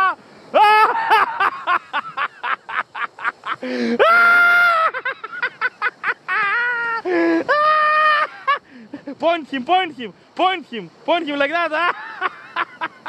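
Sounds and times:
long drawn-out cry: 0.0 - 1.8, 3.5 - 5.2, 6.3 - 8.6
person laughing loudly: 0.0 - 9.2, 11.7 - 13.0.

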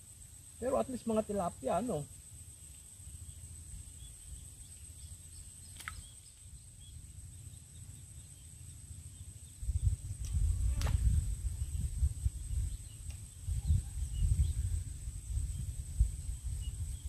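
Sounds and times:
wind rumble on microphone: 9.1 - 17.0.

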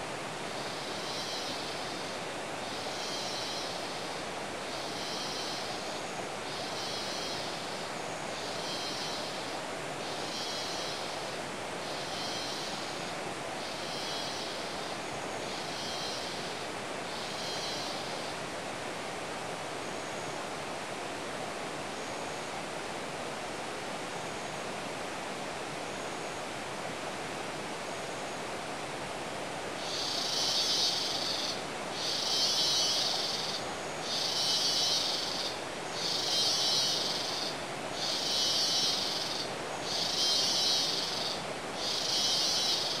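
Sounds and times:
rainforest rushing hiss: 0.0 - 43.0.

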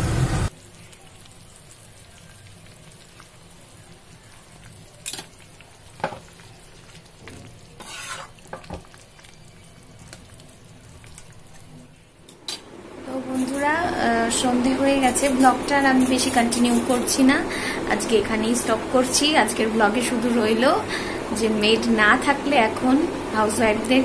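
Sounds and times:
curry bubbling and sizzling: 0.1 - 13.0
metal ladle scraping and clinking: 7.8 - 8.4.

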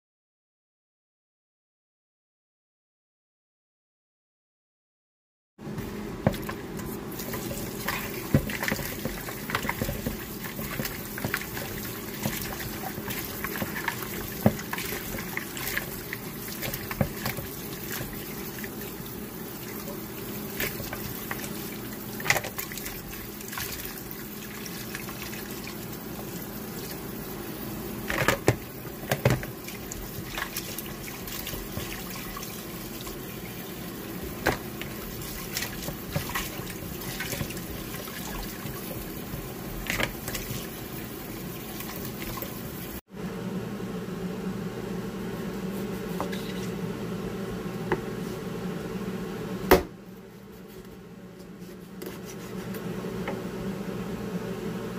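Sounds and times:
tap water running into bowl: 6.3 - 43.0
splashes and knocks against bowl: 7.2 - 18.8.

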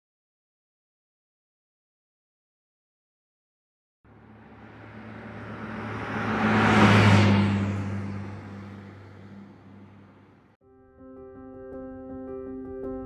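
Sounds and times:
truck driving past: 4.1 - 10.6.

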